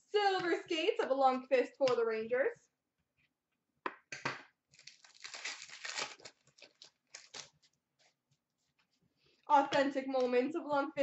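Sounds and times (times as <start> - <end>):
trading cards rustling: 4.7 - 7.7.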